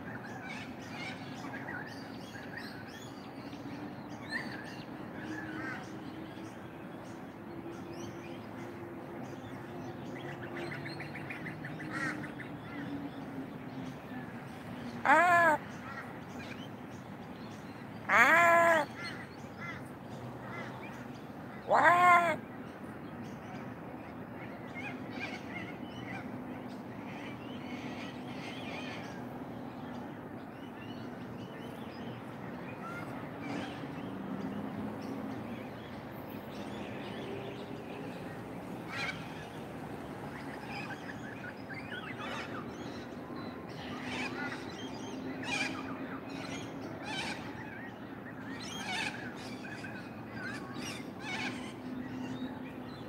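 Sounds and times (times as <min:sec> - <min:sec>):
crow cawing: 0:15.0 - 0:15.6, 0:18.1 - 0:19.8, 0:21.7 - 0:22.4.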